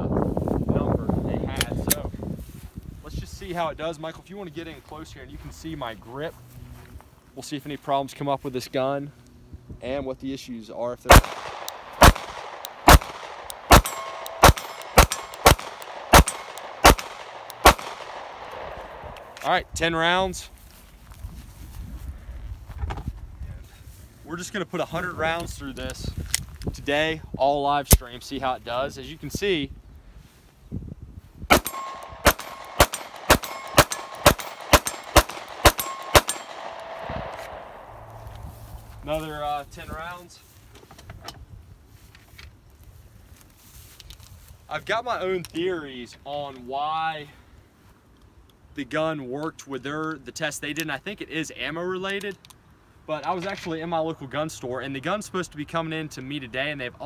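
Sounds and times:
pistol shots: 0:11.1 - 0:19.4, 0:31.5 - 0:38.1
faint metallic ringing: 0:13.7 - 0:15.4, 0:31.6 - 0:35.1.

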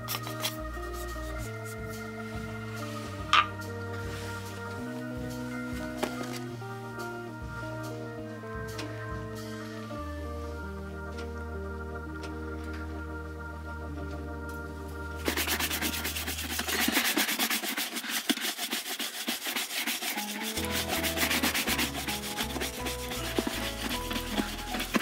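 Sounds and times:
background music: 0:00.0 - 0:17.9, 0:18.5 - 0:25.0
brush scrubbing leather boot: 0:15.2 - 0:25.0.

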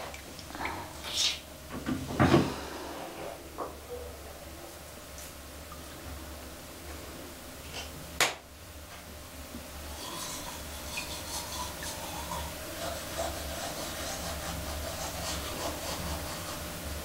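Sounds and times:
steady low hum: 0:00.0 - 0:17.0
toothbrush scrubbing teeth: 0:09.9 - 0:16.8.

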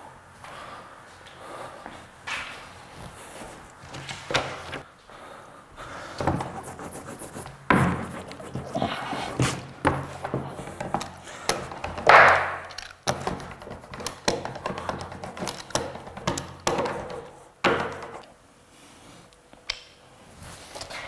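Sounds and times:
wooden knocks and taps: 0:09.4 - 0:18.3.

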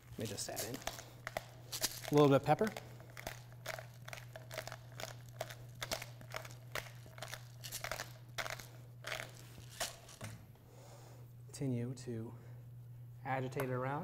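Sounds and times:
pepper mill grinding: 0:00.0 - 0:10.2.

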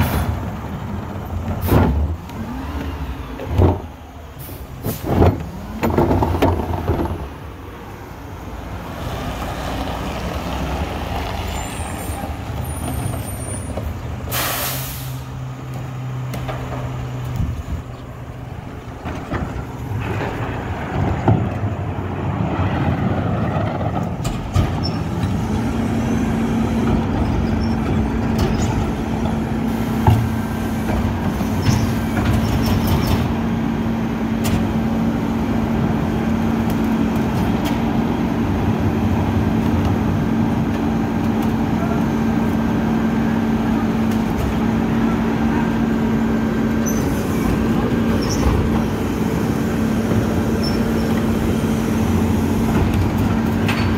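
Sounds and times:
air hiss: 0:14.3 - 0:15.3
diesel truck engine idling: 0:33.4 - 0:53.9.

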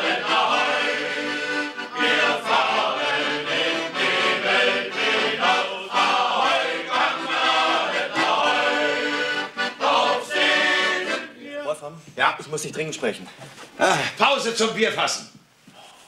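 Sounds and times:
accordion: 0:00.0 - 0:11.4
men's choir singing: 0:00.0 - 0:11.6.

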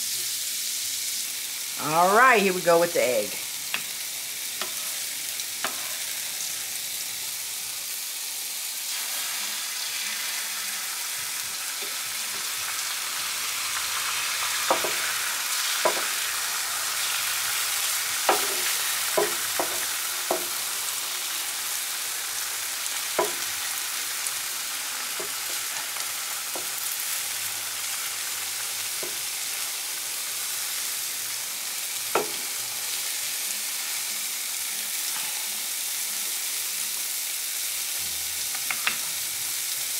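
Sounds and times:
egg sizzling on griddle: 0:00.0 - 0:39.9.

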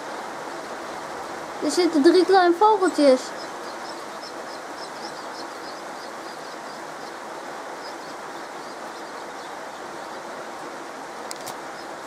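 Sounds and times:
heavy rain falling: 0:00.0 - 0:12.0.

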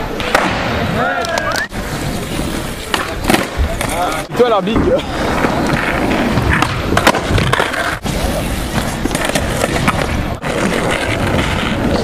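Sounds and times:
skateboard wheels rolling on asphalt: 0:00.0 - 0:12.0
skateboard wooden clacks: 0:02.8 - 0:12.0.

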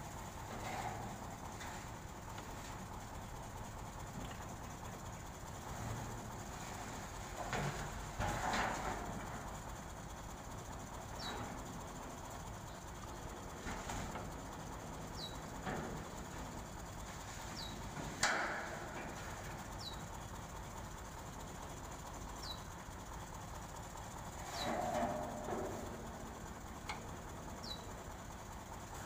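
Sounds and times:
low outdoor hum: 0:00.0 - 0:29.0
bird chirping: 0:15.2 - 0:15.4, 0:22.4 - 0:22.7, 0:27.6 - 0:27.9.

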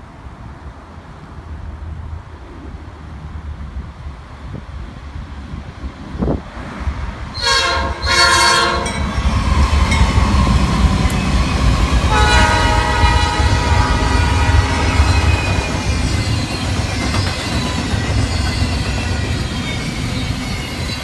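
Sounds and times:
train wheels on rails: 0:04.4 - 0:21.0
train horn blasts: 0:07.4 - 0:09.1, 0:12.1 - 0:15.7
high wheel squeal: 0:07.4 - 0:21.0.

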